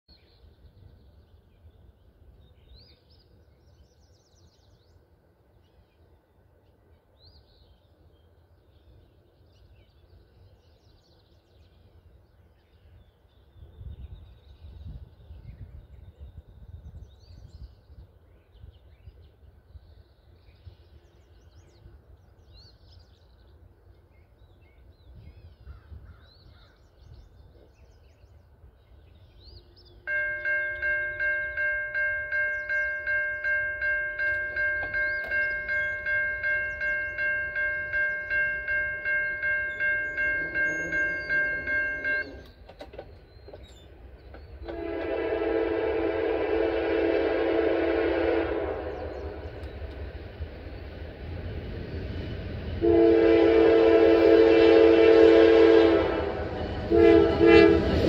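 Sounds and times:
birds calling and chirping: 6.8s - 45.0s, 48.5s - 52.8s
wind rumble on microphone: 13.5s - 19.9s, 24.9s - 28.9s.

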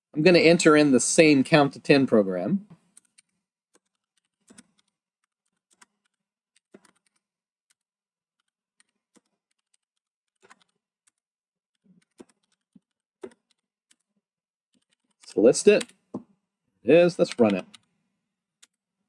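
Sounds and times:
faint computer keyboard keystrokes: 17.2s - 17.9s.

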